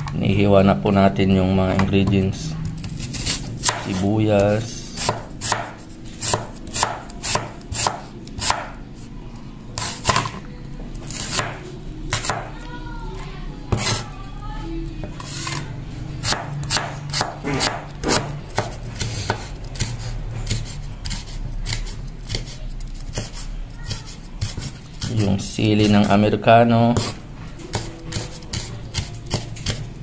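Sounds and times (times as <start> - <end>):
cleaver chopping on wooden board: 3.6 - 4.0, 5.0 - 8.7, 16.2 - 22.5.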